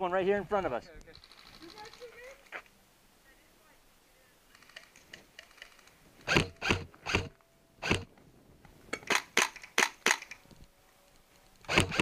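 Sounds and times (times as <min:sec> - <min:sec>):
airsoft gun shots: 0:06.3 - 0:08.1.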